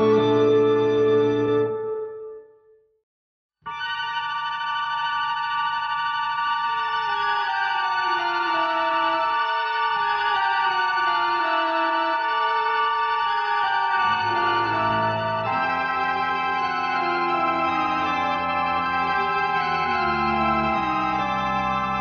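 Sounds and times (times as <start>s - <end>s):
sustained chord with slow melody: 0.0s - 2.6s, 13.5s - 22.0s.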